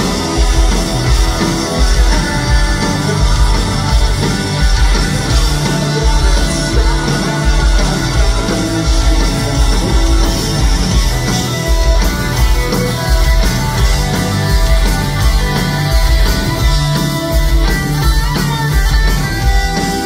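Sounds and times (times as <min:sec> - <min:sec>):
singer singing: 0:00.0 - 0:11.4
bass: 0:00.0 - 0:20.0
distorted electric guitar: 0:00.0 - 0:20.0
drums on a steady beat: 0:00.0 - 0:20.0.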